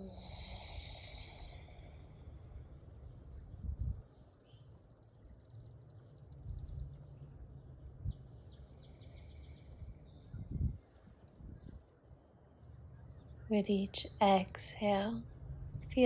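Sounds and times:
low steady rumble: 12.9 - 16.0.

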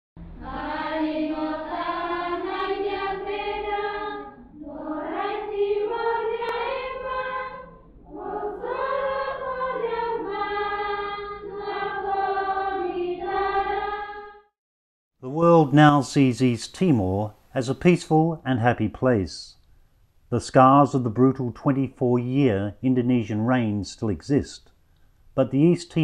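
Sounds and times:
choir singing: 0.2 - 14.5.

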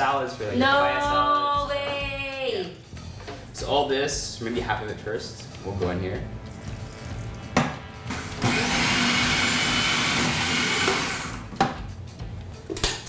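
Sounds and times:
food processor motor whirring: 8.1 - 11.6.

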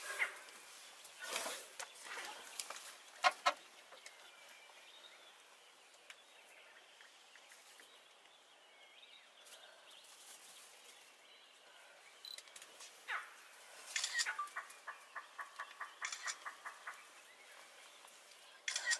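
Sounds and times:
bird chirps: 13.9 - 18.9.

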